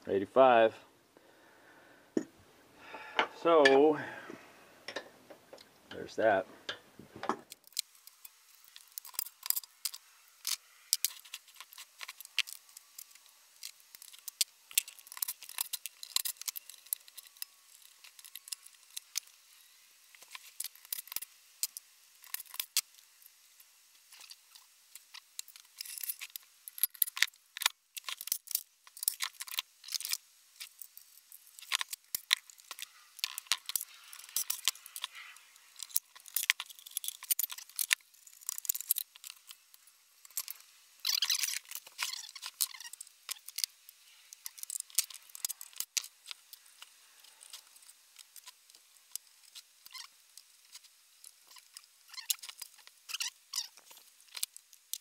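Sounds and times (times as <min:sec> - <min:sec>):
metal parts and tools clinking: 0:07.5 - 0:19.3, 0:25.0 - 0:39.6, 0:44.3 - 0:48.6.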